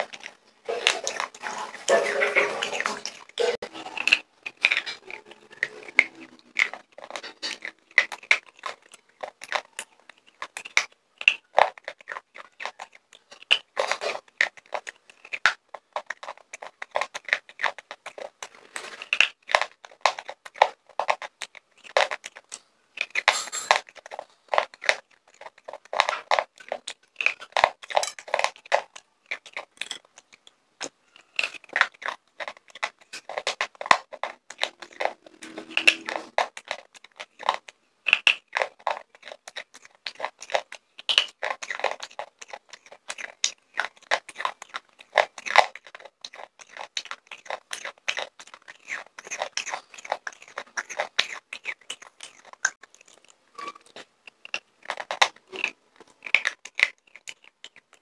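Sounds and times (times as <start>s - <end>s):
pencil being chewed with crunches: 0.0s - 58.0s.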